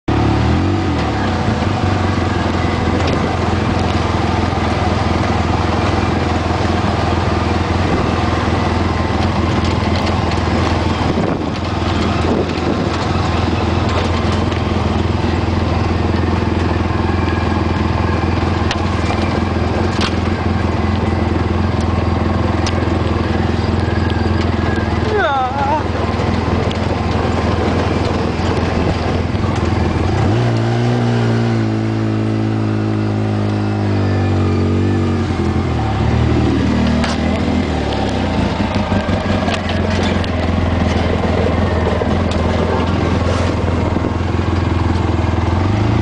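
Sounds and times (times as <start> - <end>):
vehicle engine running: 0.0 - 46.0
knocks and rattles: 36.5 - 45.2.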